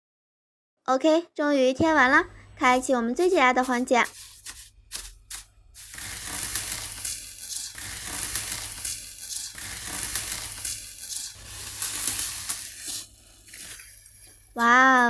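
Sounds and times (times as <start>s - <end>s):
metallic foil crackling: 3.2s - 15.0s.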